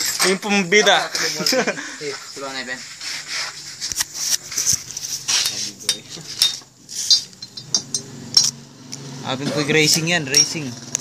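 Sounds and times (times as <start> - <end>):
metal tools clinking: 4.2 - 8.6, 9.5 - 10.8.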